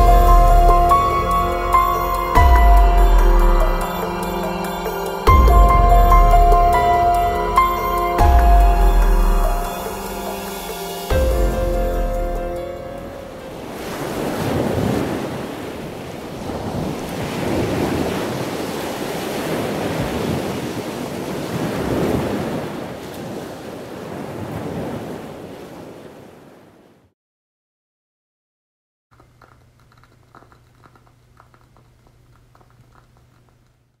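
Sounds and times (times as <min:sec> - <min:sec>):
ocean waves surging: 0:00.0 - 0:26.8
faint low hum with crackling: 0:29.1 - 0:34.0.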